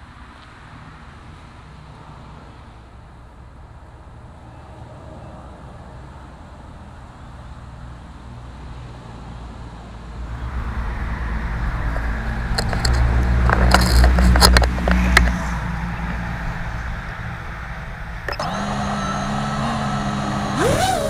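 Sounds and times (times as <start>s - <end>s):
low rumble: 10.2s - 18.4s
drone motors whining: 14.8s - 21.0s.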